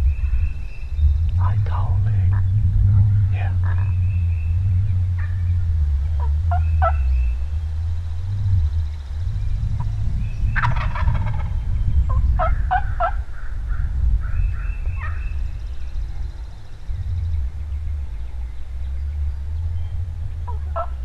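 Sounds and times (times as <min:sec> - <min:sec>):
steady low rumble: 0:00.0 - 0:21.0
turkey gobbling: 0:03.6 - 0:03.9, 0:05.2 - 0:07.2, 0:10.6 - 0:13.3, 0:20.4 - 0:21.0.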